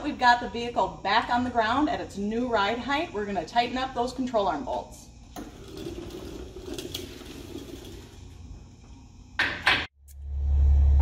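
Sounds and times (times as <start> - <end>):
creeper rolling on floor: 5.4 - 9.2.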